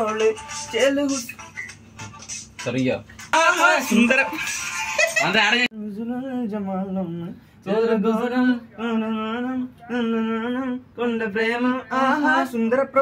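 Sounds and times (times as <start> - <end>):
man singing wordless melody: 3.4 - 4.4, 5.2 - 13.0.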